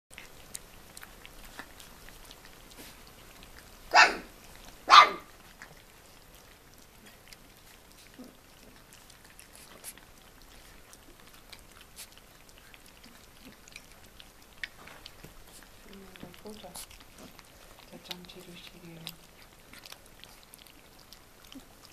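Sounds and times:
puppies eating wet smacking: 0:00.1 - 0:21.9
dog barking: 0:03.9 - 0:04.3, 0:04.9 - 0:05.3.

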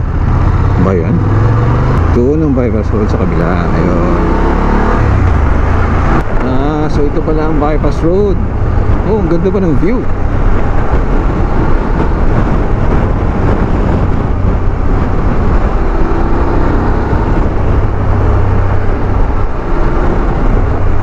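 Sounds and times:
motorcycle engine drone: 0:00.0 - 0:21.0
wind rush on microphone: 0:00.0 - 0:21.0.

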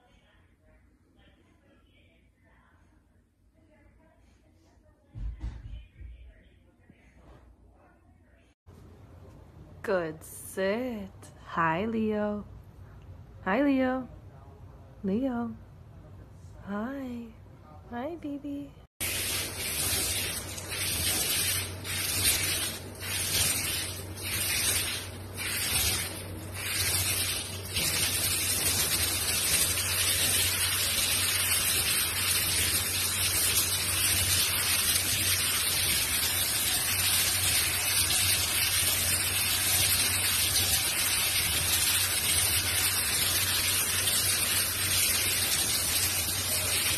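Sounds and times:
shower head spraying water: 0:19.0 - 0:46.9.

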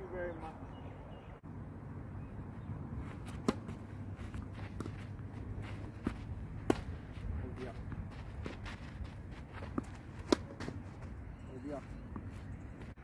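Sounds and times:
shoes scuffing on clay: 0:03.0 - 0:13.0
tennis ball hit with racket: 0:03.3 - 0:05.0, 0:06.0 - 0:06.9, 0:09.7 - 0:10.7.

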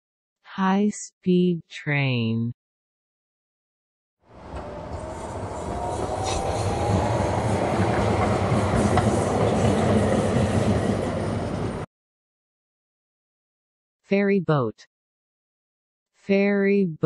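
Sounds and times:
high-speed train passing: 0:04.3 - 0:11.9.

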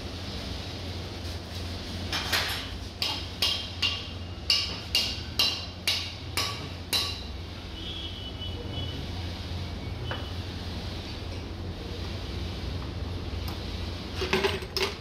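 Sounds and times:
hammer striking metal: 0:03.0 - 0:07.3.

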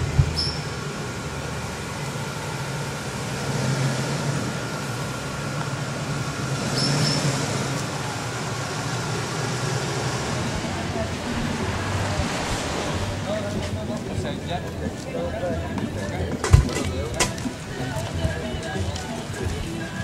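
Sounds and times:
engine low rumble: 0:00.0 - 0:20.0.

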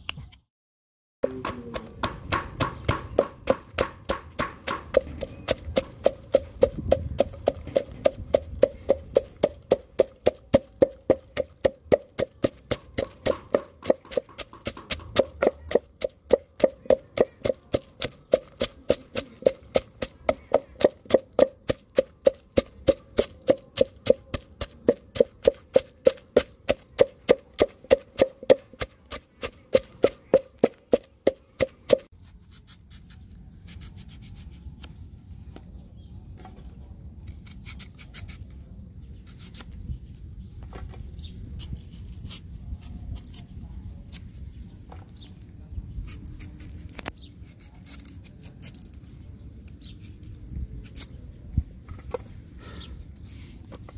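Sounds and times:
pestle pounding in a mortar: 0:01.2 - 0:32.1.

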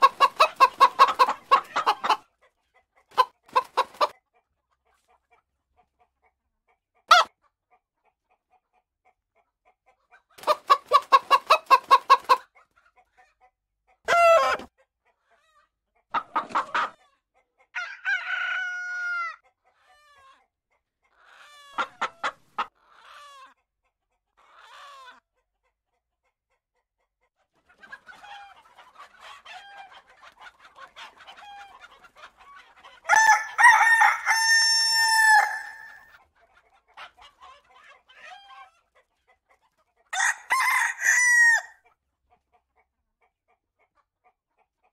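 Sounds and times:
hens clucking: 0:00.0 - 0:26.4, 0:27.0 - 0:41.7
rooster crowing: 0:14.1 - 0:14.6, 0:17.8 - 0:19.4, 0:33.1 - 0:36.1, 0:40.2 - 0:41.8.

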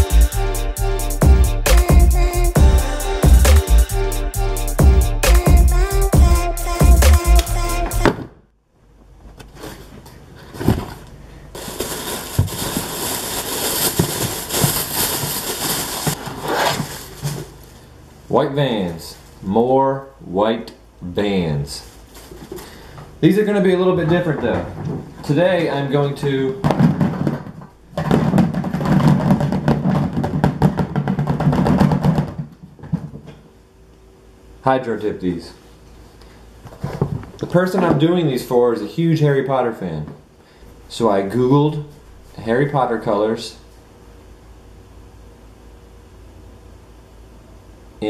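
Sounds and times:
spray cans rattling in plastic tub: 0:11.6 - 0:16.2, 0:26.6 - 0:32.5
tissue paper rustling: 0:11.6 - 0:17.9
cardboard box knocks: 0:26.6 - 0:33.2.

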